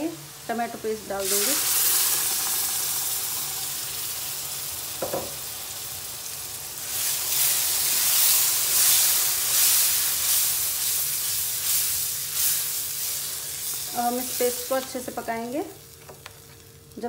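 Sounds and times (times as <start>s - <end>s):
paste sizzling in hot oil: 0.1s - 17.0s
brief knock: 5.0s - 5.4s.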